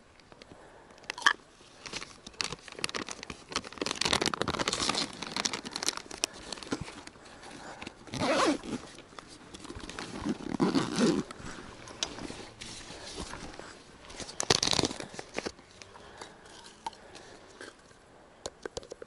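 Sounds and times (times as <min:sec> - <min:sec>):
rustling packets in bag: 0:00.0 - 0:17.9
zipper pulled open: 0:07.8 - 0:09.0, 0:09.6 - 0:12.6.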